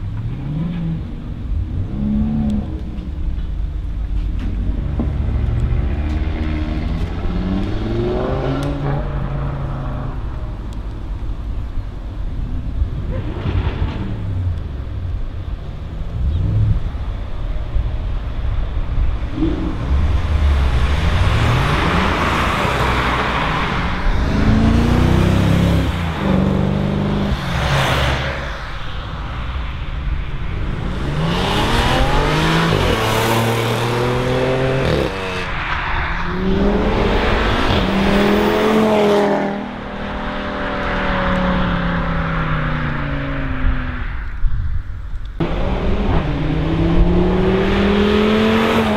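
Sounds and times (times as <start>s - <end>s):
cars accelerating hard past: 19.3s - 44.2s, 45.4s - 48.9s.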